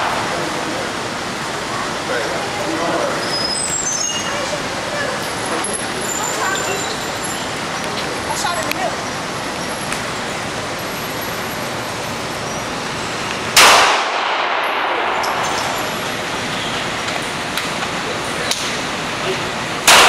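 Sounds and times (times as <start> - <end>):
handgun shot echoing: 13.6 - 15.4.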